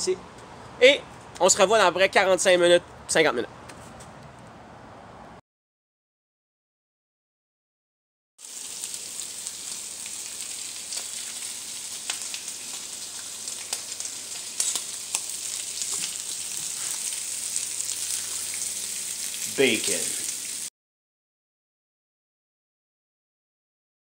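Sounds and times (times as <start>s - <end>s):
bacon sizzling in a pan: 8.4s - 20.7s.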